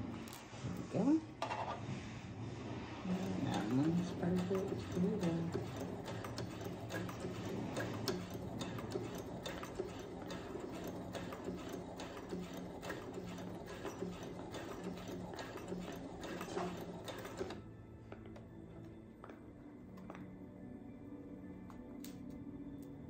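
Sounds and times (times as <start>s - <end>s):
sewing machine motor hum: 2.8s - 17.8s
sewing needle mechanism clicks: 3.3s - 17.6s.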